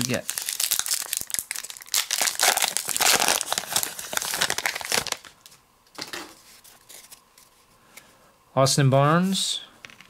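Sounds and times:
wrapper crinkling and tearing: 0.0s - 5.4s
cards rustling: 0.0s - 5.6s.

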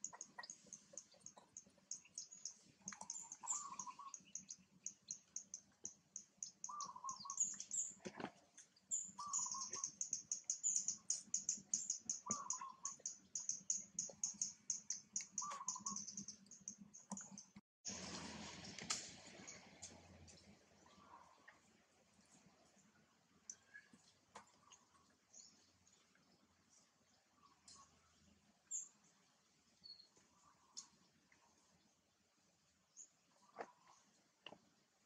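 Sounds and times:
rapid high bird chirping: 0.0s - 8.0s, 9.0s - 17.6s.

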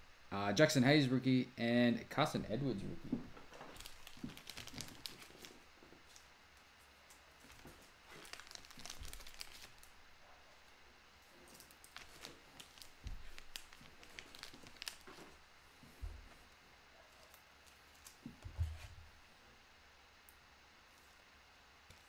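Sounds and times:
plastic wrappers and cards rustling: 2.6s - 6.3s, 7.3s - 10.0s, 11.2s - 15.4s.

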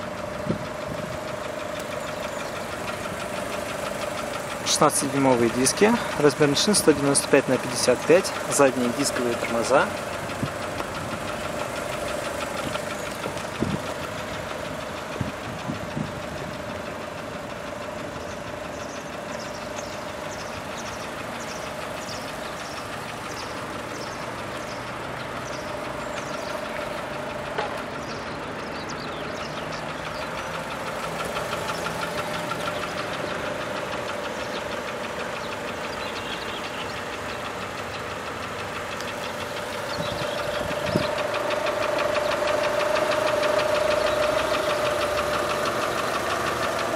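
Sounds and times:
car engine idling: 0.0s - 46.9s.

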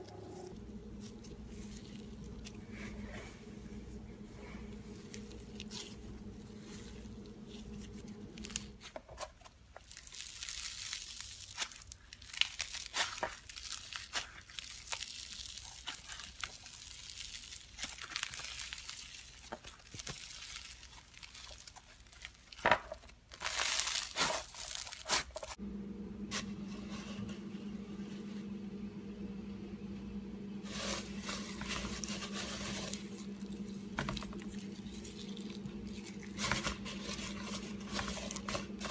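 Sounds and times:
steady low hum: 0.0s - 9.0s, 25.5s - 38.9s
foam beads crackling and popping: 9.6s - 25.6s, 30.7s - 38.9s.

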